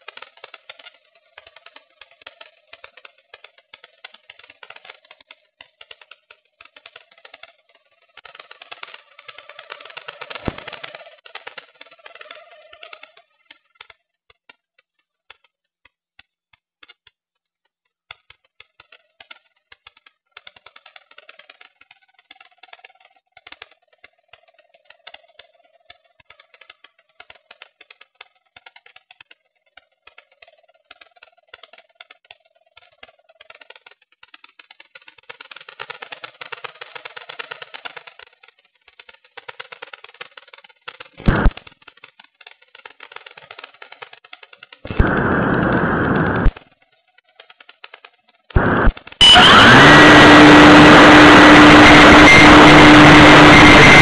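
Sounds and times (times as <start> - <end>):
dense crackling: 0.0 - 14.1, 30.4 - 54.0
wind rushing noise: 44.9 - 46.5
steady motor hum: 48.6 - 54.0.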